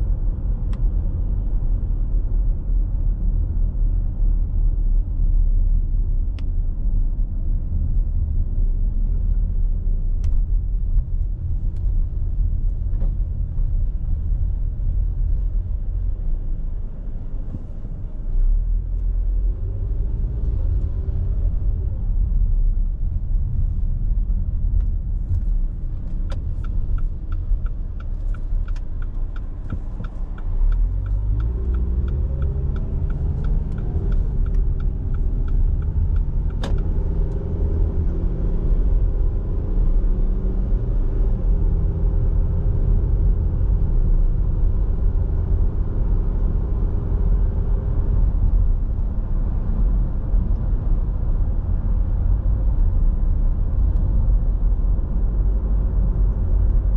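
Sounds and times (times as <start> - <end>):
car engine and road rumble: 0.0 - 56.9
turn signal ticking: 24.4 - 38.3.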